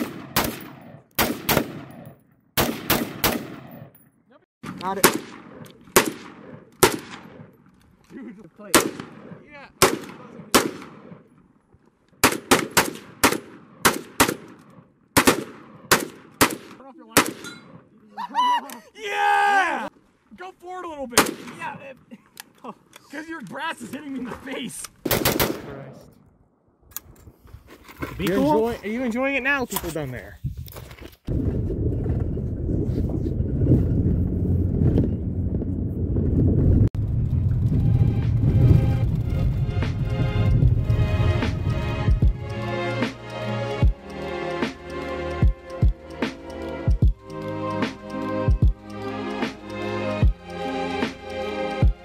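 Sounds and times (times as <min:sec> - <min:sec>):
gunshots with echo: 0:00.0 - 0:03.9, 0:04.6 - 0:07.6, 0:08.7 - 0:11.3, 0:12.2 - 0:17.9, 0:25.1 - 0:25.8
car driving on dirt road: 0:31.3 - 0:42.0.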